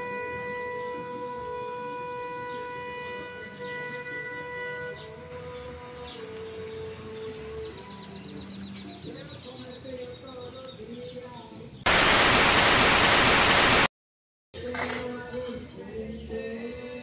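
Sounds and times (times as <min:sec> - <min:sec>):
faint background music: 0:00.0 - 0:11.9, 0:14.6 - 0:17.0
static hiss: 0:11.9 - 0:13.9.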